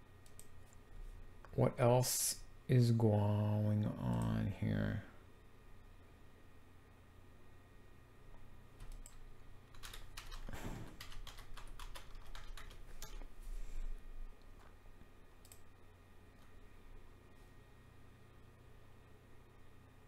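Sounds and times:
steady low hum: 0.0s - 20.0s
computer keyboard typing: 0.2s - 0.6s, 8.8s - 13.3s.

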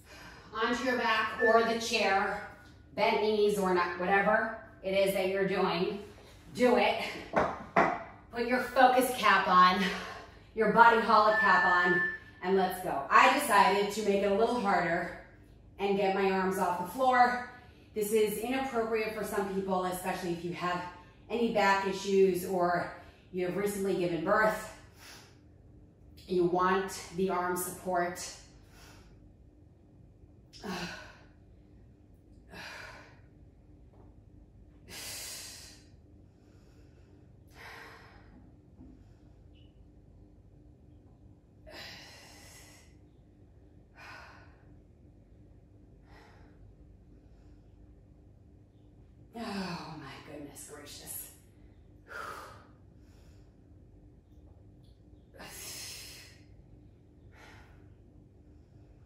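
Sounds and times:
woman breathing heavily: 0.0s - 0.6s, 34.9s - 39.5s, 41.6s - 43.0s, 43.8s - 45.0s, 46.0s - 48.0s, 52.0s - 53.8s, 57.2s - 59.0s.

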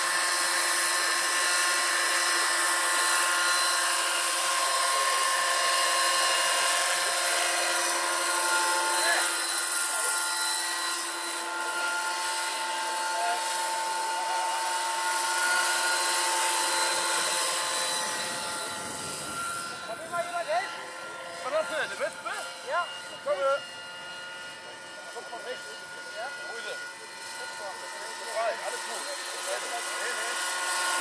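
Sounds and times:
electric motor whine: 0.0s - 31.0s
rotor blades swishing: 2.5s - 23.9s.

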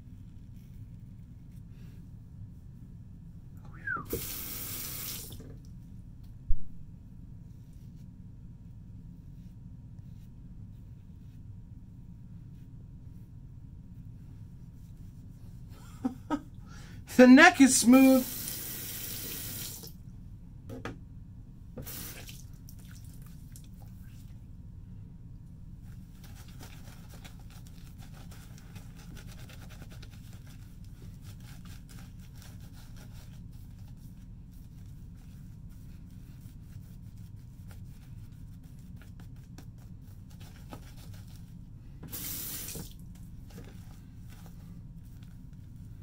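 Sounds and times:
low steady hum: 0.0s - 46.0s
shaving brush scratching lather: 26.1s - 41.5s.

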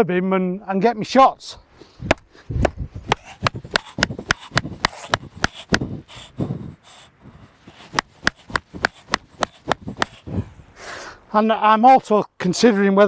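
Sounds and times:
stake hammered into ground: 3.1s - 6.0s, 7.7s - 10.2s.

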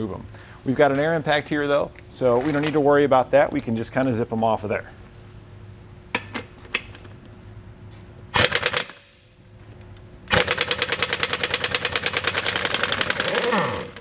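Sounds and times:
air impact wrench hammering: 8.3s - 9.3s, 10.3s - 14.0s
tool spinning down whine: 10.3s - 14.0s.

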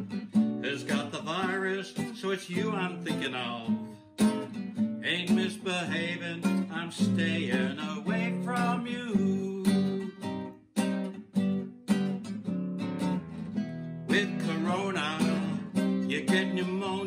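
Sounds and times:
classical guitar strumming: 0.0s - 17.0s.

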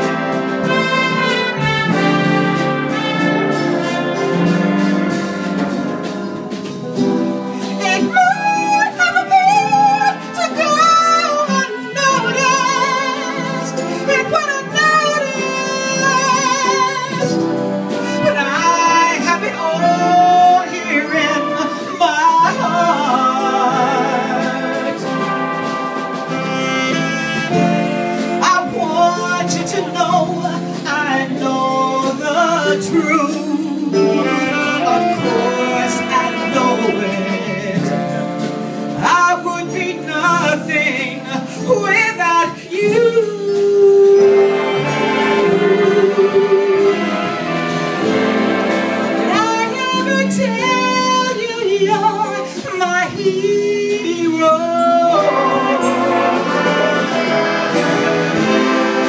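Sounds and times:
big band with saxophones and brass: 0.0s - 59.0s
woman singing into a microphone: 7.8s - 25.3s, 28.4s - 38.2s, 39.0s - 47.0s, 49.3s - 56.9s.

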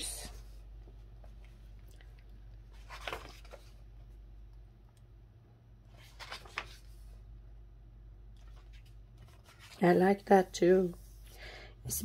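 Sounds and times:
low steady hum: 0.0s - 12.0s
magazine pages swishing: 2.7s - 3.8s, 5.9s - 7.1s.

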